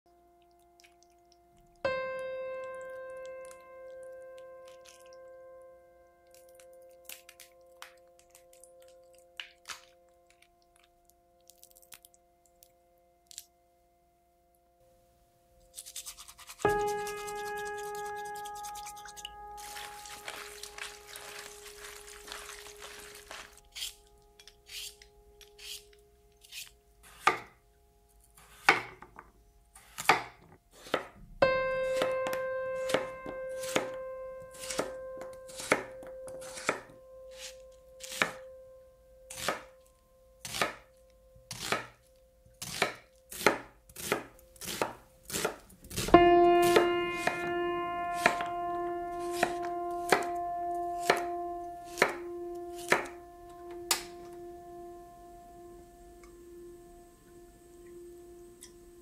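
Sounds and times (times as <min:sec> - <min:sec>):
soft sustained music notes: 0:00.1 - 0:28.4, 0:31.4 - 0:45.3, 0:45.9 - 0:59.0
knife cutting on wooden board: 0:15.7 - 0:21.4, 0:24.7 - 0:25.8, 0:26.4 - 0:27.5, 0:28.4 - 0:28.9, 0:29.8 - 0:31.1, 0:33.6 - 0:33.9, 0:35.5 - 0:38.4, 0:41.5 - 0:41.9, 0:52.8 - 0:53.1
brush scrubbing in water: 0:15.7 - 0:24.0.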